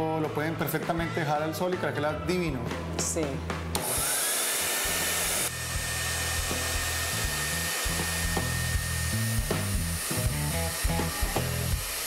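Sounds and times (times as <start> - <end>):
hair dryer blowing: 3.8 - 12.0.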